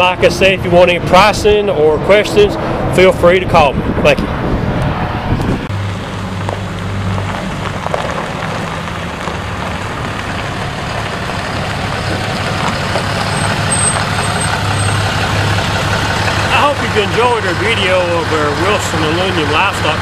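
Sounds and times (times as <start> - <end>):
diesel truck engine running: 0.0 - 20.0.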